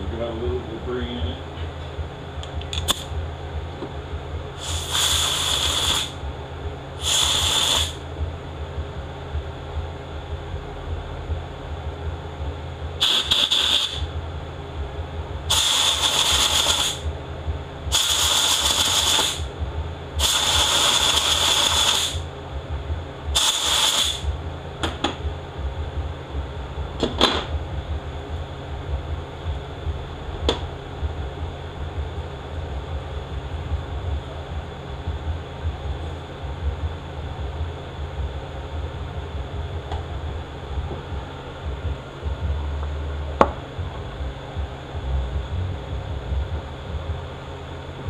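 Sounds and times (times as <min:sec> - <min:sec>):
steady low hum: 0:00.0 - 0:48.0
compressed air blasts: 0:04.6 - 0:06.2, 0:07.0 - 0:08.0, 0:13.0 - 0:14.1, 0:15.5 - 0:17.0, 0:17.9 - 0:19.5, 0:20.2 - 0:22.2, 0:23.3 - 0:24.3.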